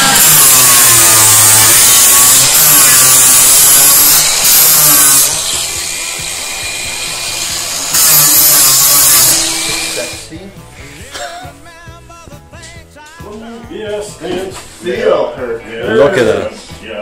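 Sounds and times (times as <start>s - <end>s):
angle grinder sanding wood: 0.0s - 10.3s.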